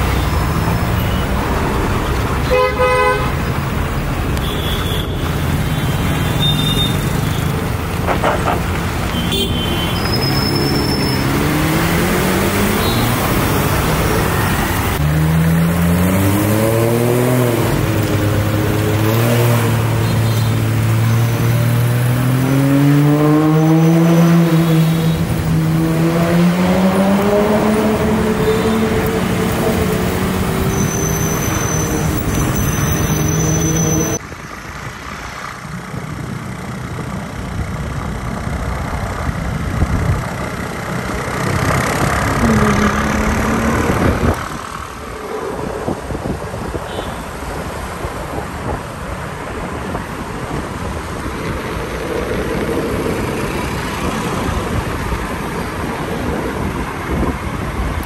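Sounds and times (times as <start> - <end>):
street traffic: 0.0 - 58.0
car horn toot: 2.4 - 3.4, 5.8 - 7.5, 9.1 - 10.8
car engine revving: 20.8 - 34.2.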